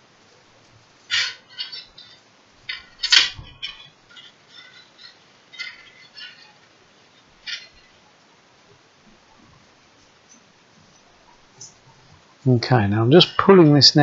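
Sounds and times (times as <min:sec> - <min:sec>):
metal spring coils clinking: 0:01.0 - 0:08.1.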